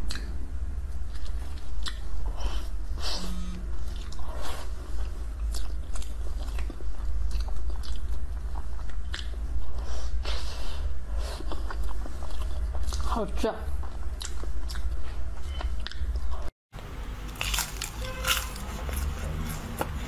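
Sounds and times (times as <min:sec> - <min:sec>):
mouth chewing clicks and smacks: 0:00.0 - 0:00.4, 0:01.1 - 0:02.1, 0:05.4 - 0:09.6, 0:13.8 - 0:16.4
steady low hum: 0:00.0 - 0:20.0.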